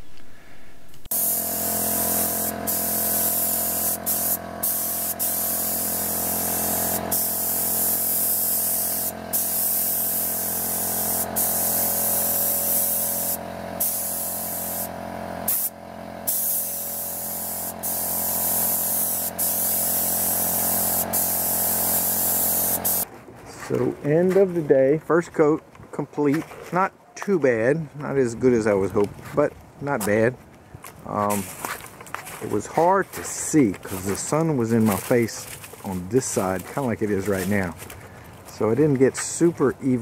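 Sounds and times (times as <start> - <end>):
spray gun hissing: 1.1 - 23.0
steady motor hum: 1.1 - 23.1.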